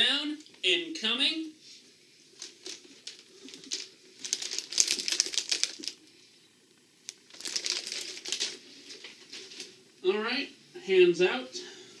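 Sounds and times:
plastic package crinkling: 0:02.4 - 0:06.1, 0:07.0 - 0:09.7.

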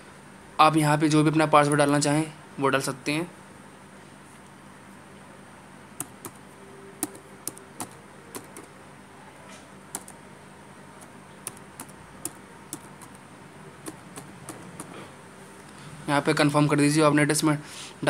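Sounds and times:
faint steady hum: 0:00.0 - 0:18.0
keyboard key clicks: 0:06.0 - 0:06.4, 0:07.0 - 0:08.7, 0:09.9 - 0:10.2, 0:11.0 - 0:13.2, 0:13.8 - 0:14.9.

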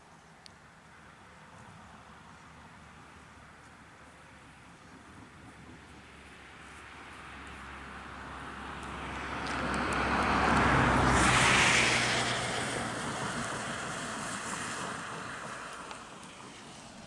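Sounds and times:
car passing by: 0:04.2 - 0:17.0.

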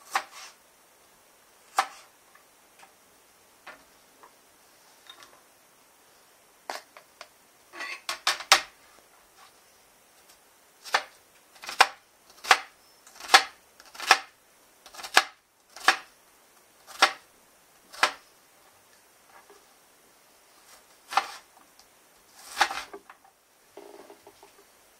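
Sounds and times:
knife cutting on plastic board: 0:01.7 - 0:02.1, 0:21.1 - 0:21.4, 0:22.4 - 0:22.9.

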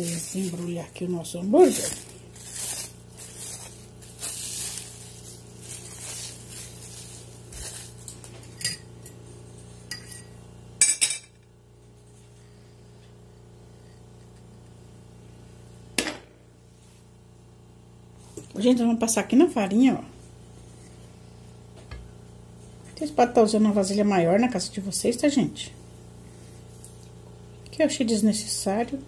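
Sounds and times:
plastic wrap crinkling: 0:00.0 - 0:08.6.

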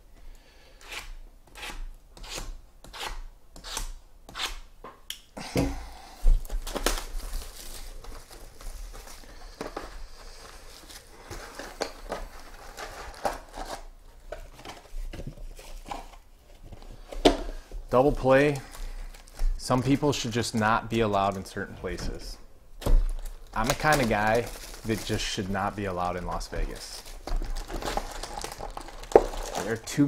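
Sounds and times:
plastic wrap crinkling and tearing: 0:06.4 - 0:16.4, 0:17.9 - 0:21.7, 0:22.9 - 0:30.0.

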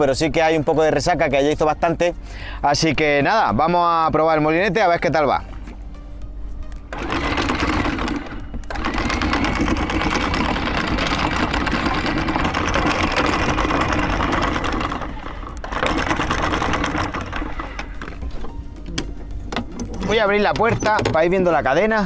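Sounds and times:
anchor windlass motor whining: 0:06.7 - 0:22.0.

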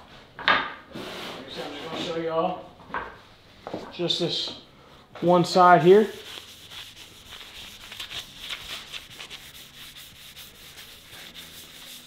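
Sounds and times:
cloth rubbing wood: 0:06.0 - 0:12.0.

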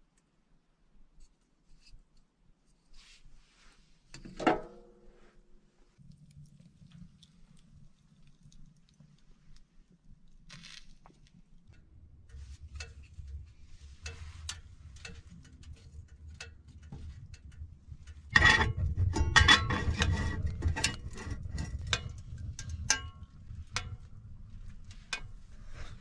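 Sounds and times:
wood fire crackling and popping: 0:06.1 - 0:26.0.

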